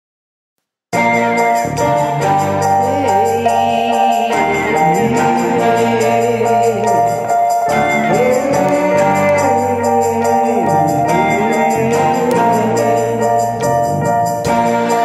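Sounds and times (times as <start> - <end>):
sustained chords: 1.0 - 15.0
wordless voice gliding: 1.9 - 14.2.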